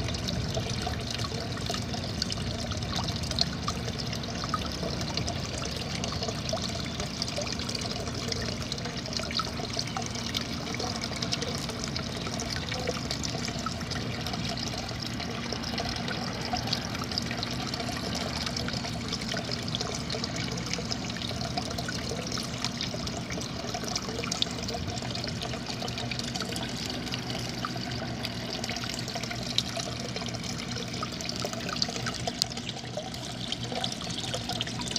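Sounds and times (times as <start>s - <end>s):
small waterfall trickling: 0.0s - 34.9s.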